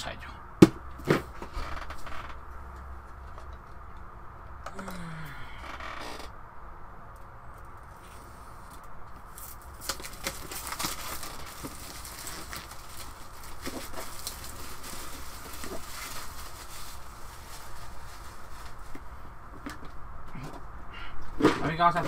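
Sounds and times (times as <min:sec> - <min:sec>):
cardboard packaging rustling: 0:07.9 - 0:19.9.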